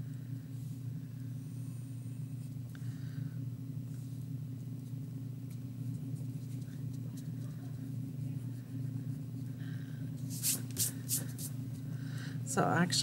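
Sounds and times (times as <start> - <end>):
eraser rubbing on paper: 10.2 - 11.6.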